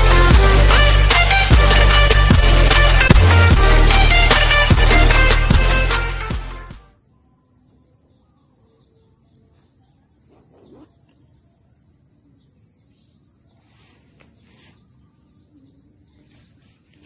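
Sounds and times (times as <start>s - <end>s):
high insect trill: 6.8s - 17.0s
soft rustles of grass and cloth: 13.5s - 17.0s.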